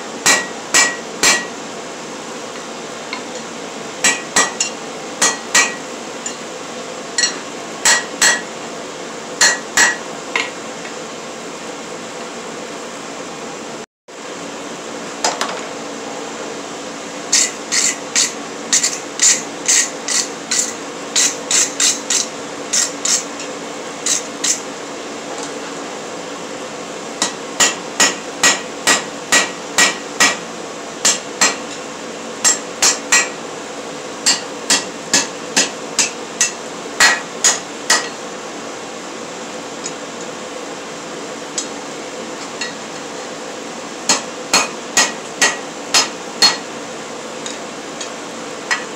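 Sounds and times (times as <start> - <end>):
hammer ringing on anvil: 0.3 - 1.6, 7.2 - 8.5, 44.1 - 46.7.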